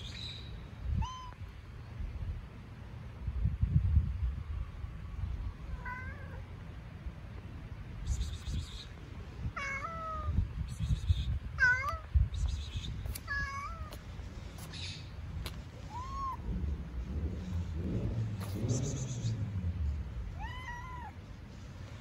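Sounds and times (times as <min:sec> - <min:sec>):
cat meowing: 0:09.6 - 0:10.4, 0:11.6 - 0:12.2, 0:13.2 - 0:14.0, 0:15.8 - 0:16.5, 0:20.2 - 0:21.2
low rumbling noise: 0:13.7 - 0:22.0.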